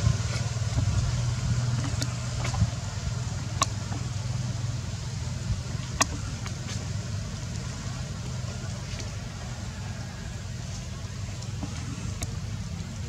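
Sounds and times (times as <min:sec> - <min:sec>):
low engine hum: 0:00.0 - 0:13.0.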